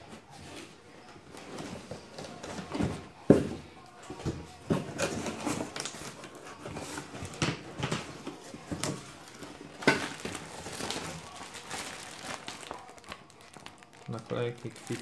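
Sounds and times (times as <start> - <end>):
plastic wrapping crinkling: 4.8 - 15.0.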